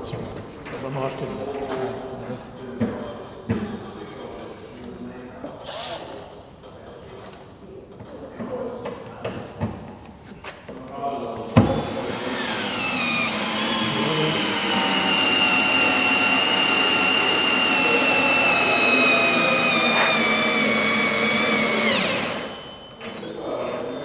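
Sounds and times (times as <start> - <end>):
cordless drill whining in wood: 11.6 - 24.0.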